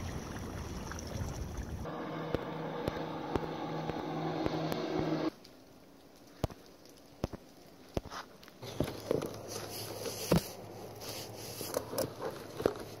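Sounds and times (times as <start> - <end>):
low steady hum: 0.0 - 6.0
rustling: 6.2 - 13.0.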